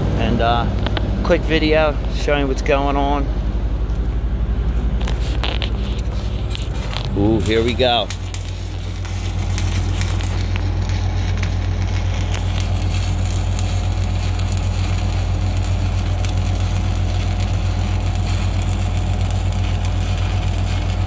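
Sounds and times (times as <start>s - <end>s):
steady low hum: 0.0s - 21.0s
welding arc crackling: 4.7s - 21.0s.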